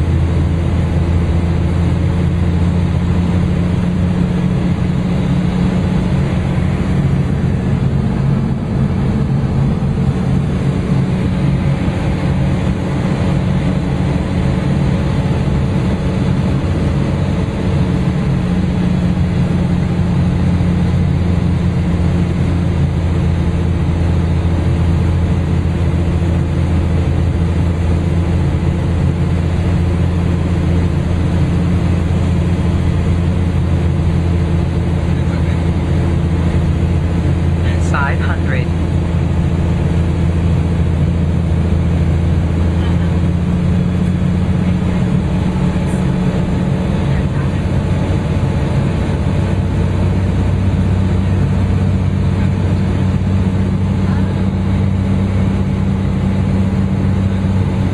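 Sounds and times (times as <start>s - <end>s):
aircraft engine and propeller drone: 0.0s - 57.9s
airflow noise: 2.4s - 19.7s.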